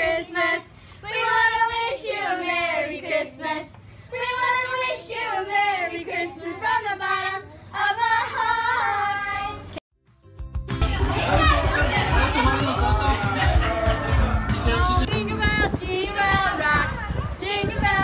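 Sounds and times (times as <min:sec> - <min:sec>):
children singing a carol: 0:00.0 - 0:09.8.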